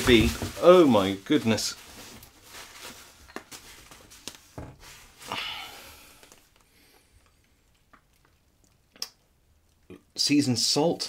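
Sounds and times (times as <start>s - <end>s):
soft rustle of bubble wrap: 0.0s - 8.6s.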